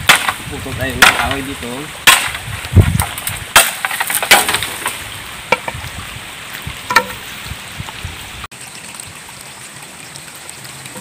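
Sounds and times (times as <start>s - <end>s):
wooden pole knocks and snaps: 0.0s - 5.8s, 6.9s - 7.2s.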